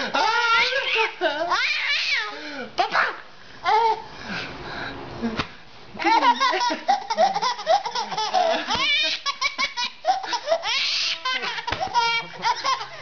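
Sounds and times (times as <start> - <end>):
baby laughing and squealing: 0.0 - 2.4, 6.3 - 13.0.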